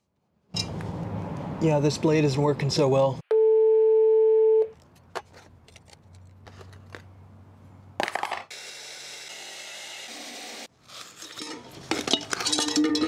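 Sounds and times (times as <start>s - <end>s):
reciprocating saw cutting steel: 8.5s - 10.7s.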